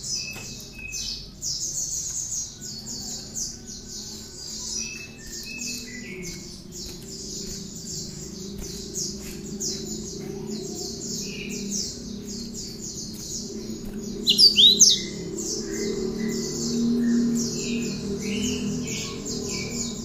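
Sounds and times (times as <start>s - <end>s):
sharp sweeping bird notes: 7.3s - 19.8s
bird singing high repeated notes: 14.2s - 16.4s.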